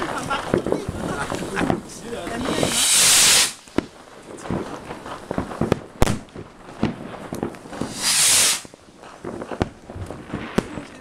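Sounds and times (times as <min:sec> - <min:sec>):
fireworks bangs and cracks: 0:00.0 - 0:11.0
rocket launch whooshing hiss: 0:00.9 - 0:03.8, 0:07.7 - 0:08.8.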